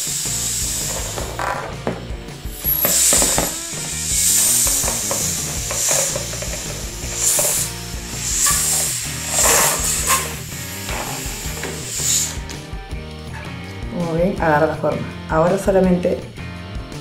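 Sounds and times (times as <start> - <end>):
air hissing out of balloon: 0.0 - 12.7
balloon rubber rubbing: 0.4 - 12.4.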